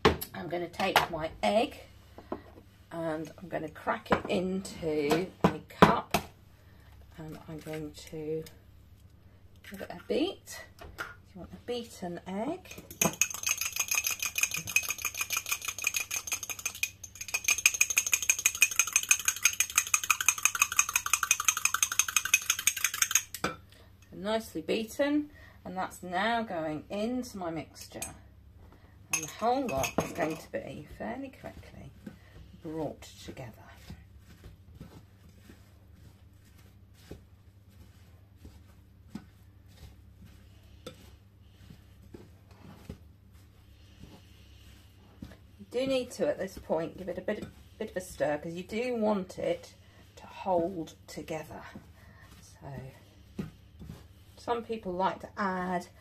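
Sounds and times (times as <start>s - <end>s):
wooden spoon stirring stiff batter: 12.6s - 23.4s, 28.5s - 56.0s
fork clinking on ceramic cup: 12.9s - 23.4s, 29.2s - 30.4s.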